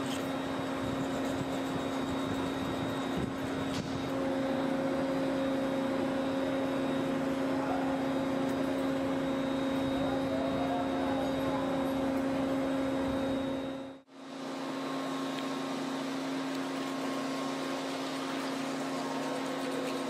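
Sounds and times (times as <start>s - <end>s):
noisy background: 0.0s - 14.4s
steady machine hum: 0.0s - 20.0s.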